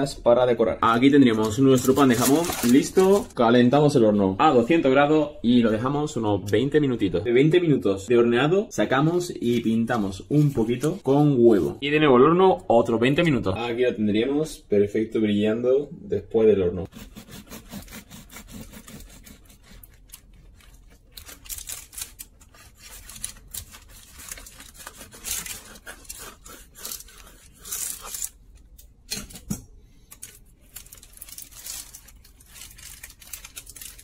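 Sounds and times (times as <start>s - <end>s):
knife sawing through bread crust: 16.9s - 28.4s.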